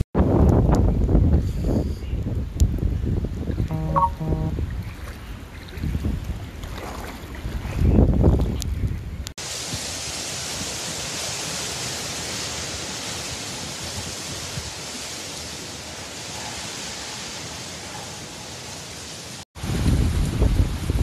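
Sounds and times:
hurricane wind: 0:00.0 - 0:21.0
driving rain: 0:09.4 - 0:21.0.

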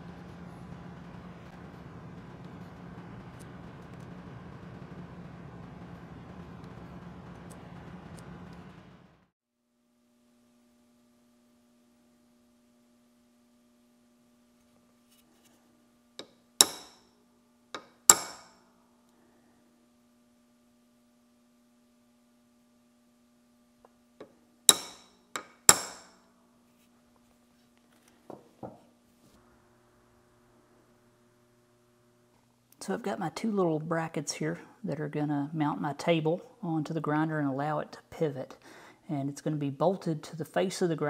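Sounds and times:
hammer striking metal punch: 0:16.2 - 0:17.0, 0:17.8 - 0:18.6, 0:24.7 - 0:26.2.

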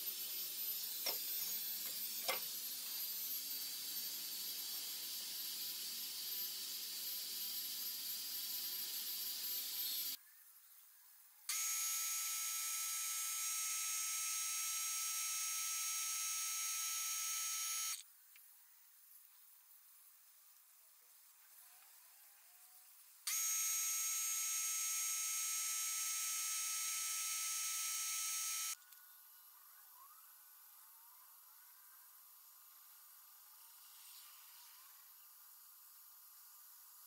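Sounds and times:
air-powered carver hissing and whining: 0:00.0 - 0:10.2, 0:22.8 - 0:28.8.

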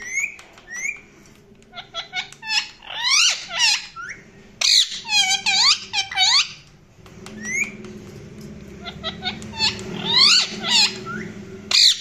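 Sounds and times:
parakeet chirping and whistling: 0:00.0 - 0:01.0, 0:01.7 - 0:06.6, 0:07.3 - 0:07.8, 0:08.8 - 0:12.0
parakeet squawk: 0:01.7 - 0:06.6, 0:08.8 - 0:12.0.

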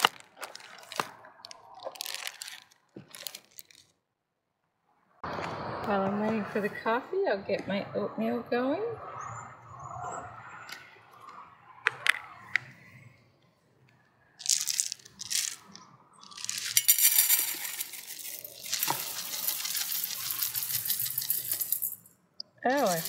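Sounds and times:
oats pouring into metal pot: 0:14.4 - 0:22.0.

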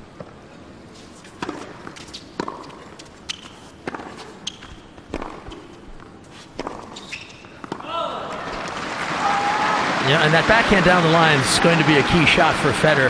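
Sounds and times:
sneaker squeaks on court: 0:01.3 - 0:07.8
tennis ball struck by rackets: 0:01.4 - 0:02.8, 0:03.8 - 0:07.9.

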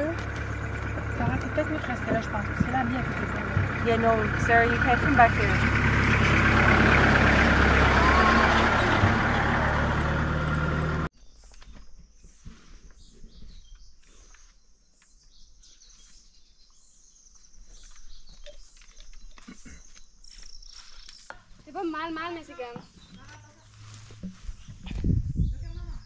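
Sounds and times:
road and wind noise: 0:00.0 - 0:11.1, 0:20.0 - 0:26.0
vehicle engine running: 0:00.0 - 0:11.1.

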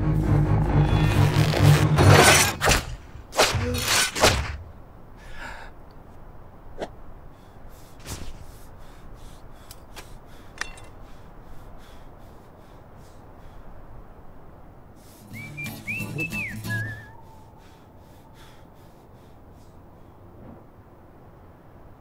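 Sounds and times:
steel cable swishing through air: 0:08.0 - 0:08.6.

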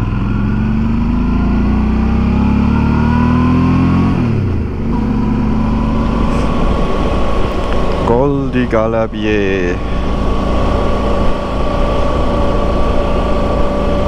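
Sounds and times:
motorcycle engine revving: 0:00.0 - 0:14.0
road and wind noise: 0:00.0 - 0:14.0.

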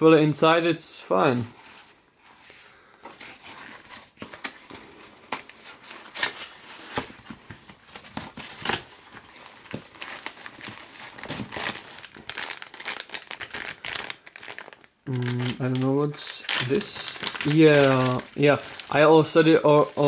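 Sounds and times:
plastic bag crinkling: 0:08.6 - 0:20.0.

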